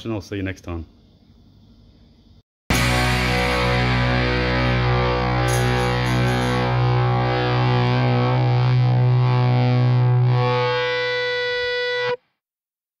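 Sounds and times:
rock music with distorted guitar: 0:02.7 - 0:12.2.

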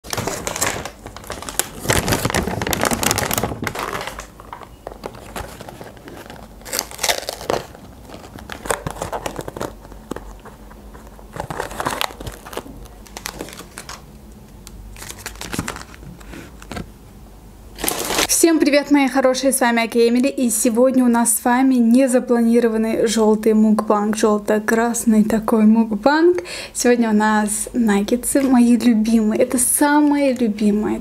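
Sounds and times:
paper packaging crinkling: 0:00.0 - 0:16.9, 0:17.8 - 0:18.3.

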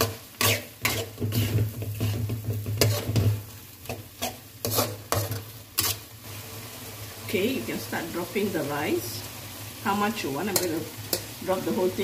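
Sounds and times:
metal spatula scraping a pan: 0:00.0 - 0:06.2.

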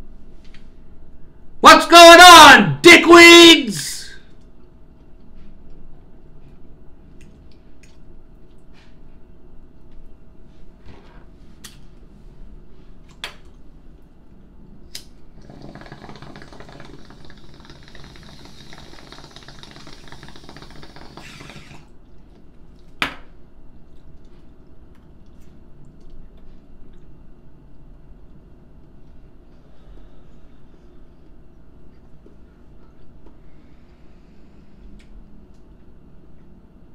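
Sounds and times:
water bubbling in a bong: 0:15.4 - 0:21.9.

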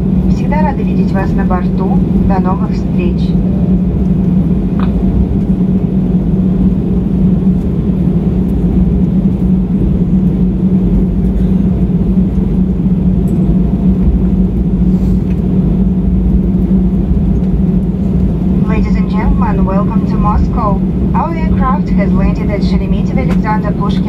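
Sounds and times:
aircraft engines rumbling: 0:00.0 - 0:24.0
constant low hum: 0:00.0 - 0:24.0.

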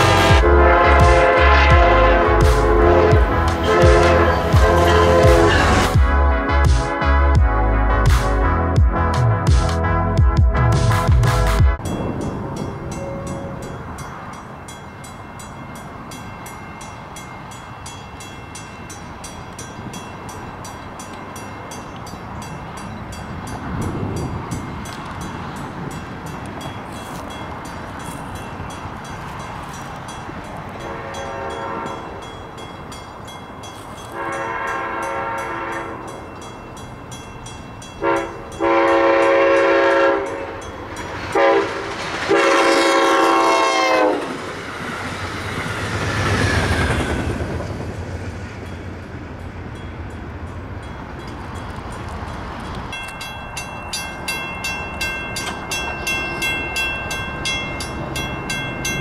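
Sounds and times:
train horn blasts: 0:00.0 - 0:06.1, 0:30.8 - 0:32.3, 0:34.1 - 0:36.2, 0:38.0 - 0:40.7, 0:41.3 - 0:44.4
train rumbling past: 0:00.0 - 0:59.0.

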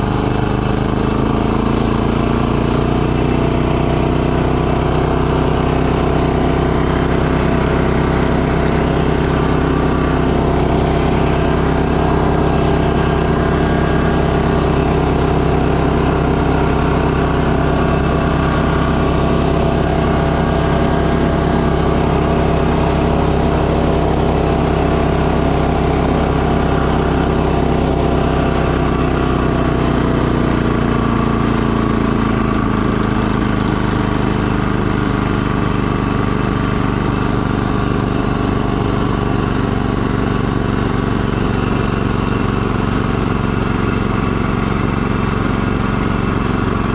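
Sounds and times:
snowblower engine running: 0:00.0 - 0:46.9.

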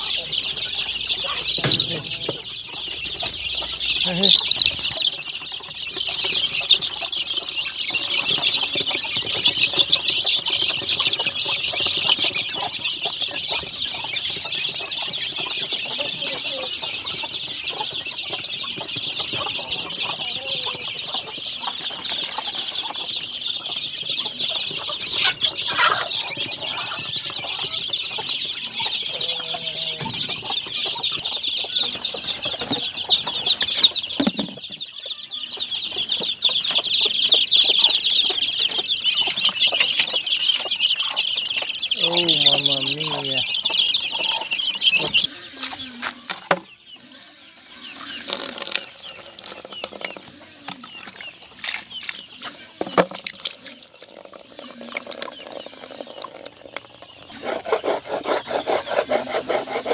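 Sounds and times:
chicks peeping: 0:00.0 - 0:59.9.

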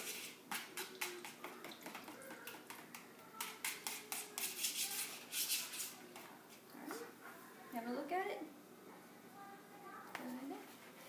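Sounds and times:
whisk tapping mixing bowl: 0:00.0 - 0:06.0.

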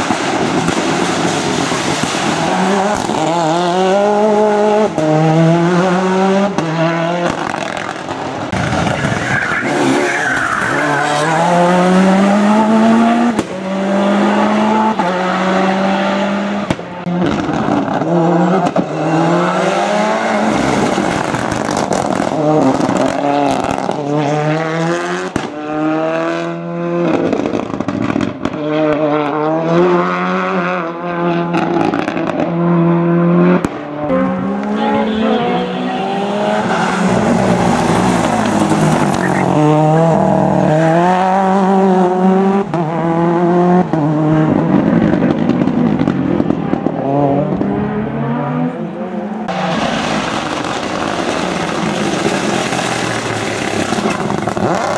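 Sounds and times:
rally car engines revving: 0:00.0 - 0:54.9
tyre squeal: 0:08.8 - 0:11.7, 0:34.8 - 0:40.2.

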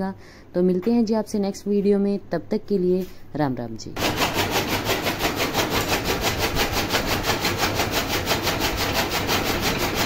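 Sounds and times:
chaff cutter blades chopping: 0:04.0 - 0:10.0.

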